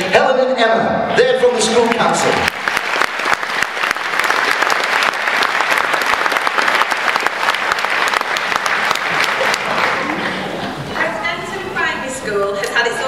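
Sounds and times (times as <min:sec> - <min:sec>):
large audience applauding: 0:01.5 - 0:10.8.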